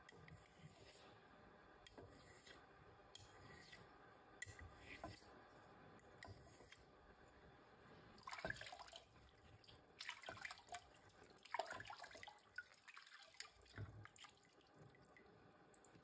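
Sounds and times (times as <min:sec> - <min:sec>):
water splashing and dripping: 0:08.2 - 0:16.0.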